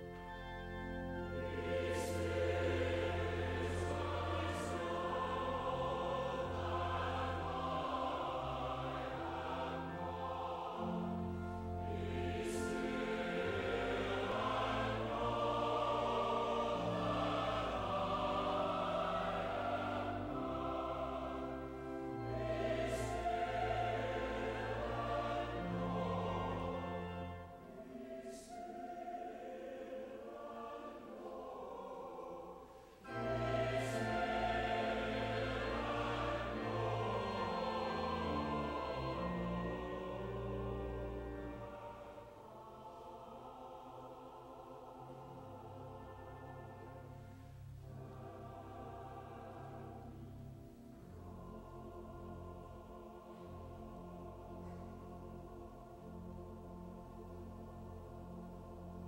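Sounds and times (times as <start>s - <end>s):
organ accompaniment: 0.0s - 32.3s, 33.0s - 43.3s
choir singing a hymn: 0.0s - 59.0s.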